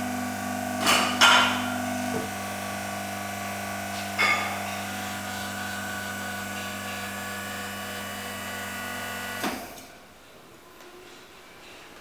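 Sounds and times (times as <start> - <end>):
electric motor hum: 0.0 - 0.8, 1.4 - 9.7
loud clunk: 0.8 - 2.3.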